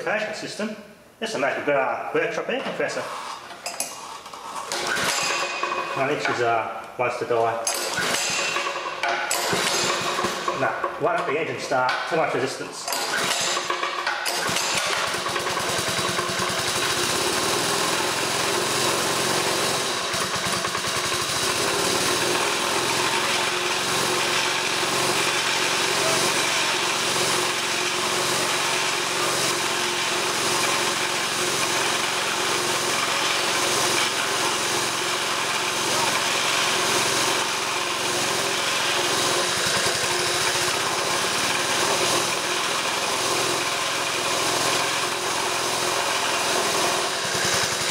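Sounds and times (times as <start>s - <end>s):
small engine running: 3.0s - 6.4s, 7.7s - 10.7s, 12.9s - 47.9s
starter cord pull: 4.7s - 6.4s, 7.6s - 12.2s, 12.9s - 18.2s, 19.3s - 24.3s, 46.0s - 47.9s
compressor pumping air: 7.7s - 10.7s, 12.9s - 47.9s.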